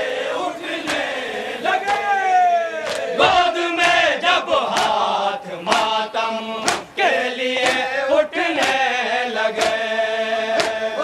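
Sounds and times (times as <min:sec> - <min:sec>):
men chanting a lament: 0:00.0 - 0:11.0
chest-beating slaps: 0:00.8 - 0:01.2, 0:01.8 - 0:02.2, 0:02.8 - 0:04.0, 0:04.6 - 0:08.9, 0:09.5 - 0:09.9, 0:10.5 - 0:10.9.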